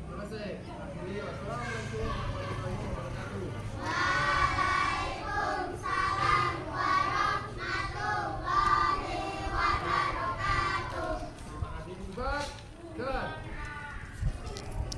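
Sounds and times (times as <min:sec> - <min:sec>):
children singing: 0:03.8 - 0:11.3.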